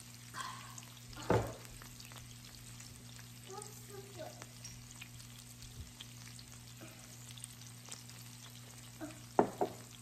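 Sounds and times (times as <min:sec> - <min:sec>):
meat sizzling on grill: 0:00.0 - 0:10.0.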